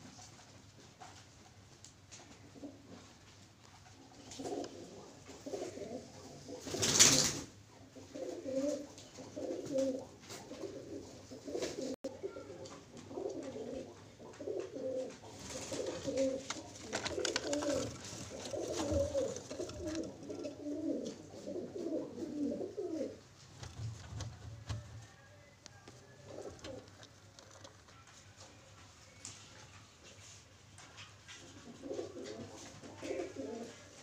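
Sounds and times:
pigeons cooing: 4.1 - 7.0, 7.6 - 23.7, 25.9 - 27.6, 31.4 - 34.0.

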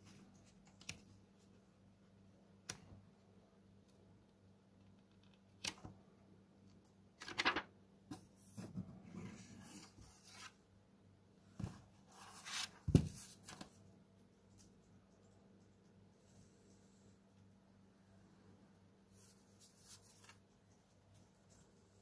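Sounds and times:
book pages rustling: 7.2 - 7.7, 11.6 - 13.8.

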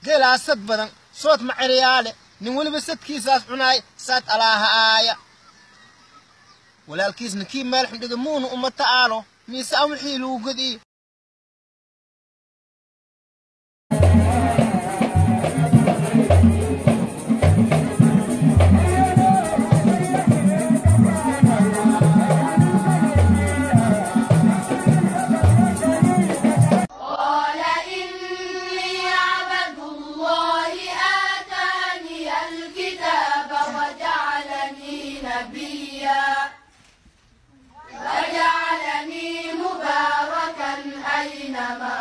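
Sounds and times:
shaking rattles: 13.9 - 26.9
steady drumbeat: 13.9 - 26.9
children singing together: 13.9 - 36.6, 37.9 - 42.0
group singing: 13.9 - 36.6, 37.9 - 42.0.

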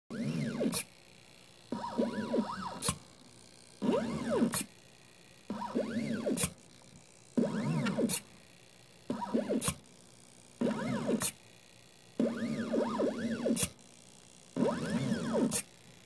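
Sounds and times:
stepper motors whining: 1.7 - 3.0, 3.8 - 4.7, 5.5 - 6.6, 7.4 - 8.3, 9.1 - 9.8, 10.6 - 11.4, 12.2 - 13.8, 14.6 - 15.7.

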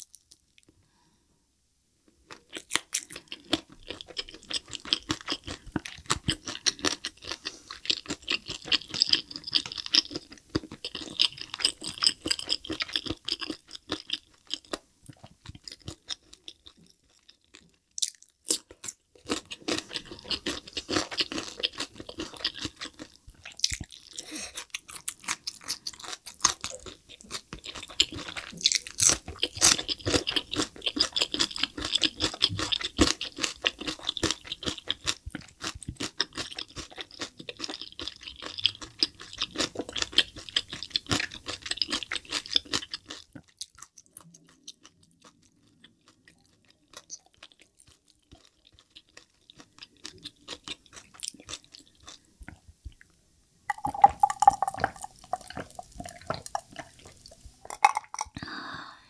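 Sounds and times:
chewing crunchy fried chicken: 2.3 - 58.4.

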